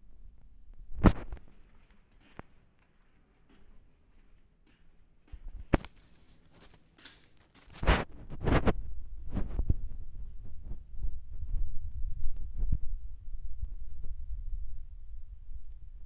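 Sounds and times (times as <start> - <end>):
rustling: 5.8 - 9.7
steady low rumble: 8.8 - 16.0.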